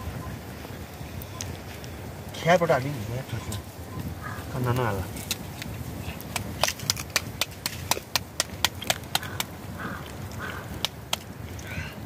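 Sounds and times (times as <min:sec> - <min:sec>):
dough slapped between palms: 0:06.3 - 0:09.6.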